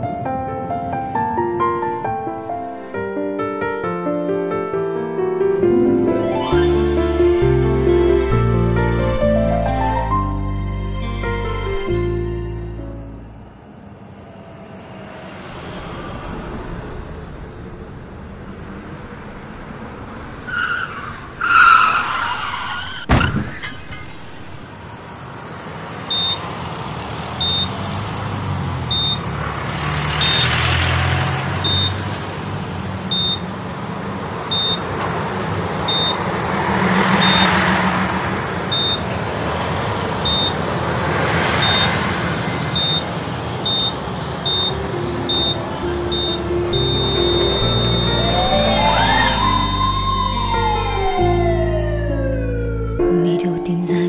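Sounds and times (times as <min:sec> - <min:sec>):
passing vehicles: 0:00.0 - 0:03.8, 0:05.5 - 0:53.1
vehicle crash: 0:13.7 - 0:25.2, 0:34.8 - 0:52.0
tyres squealing in a skid: 0:20.2 - 0:24.6, 0:47.0 - 0:51.0
short high beeps: 0:45.3 - 0:47.2.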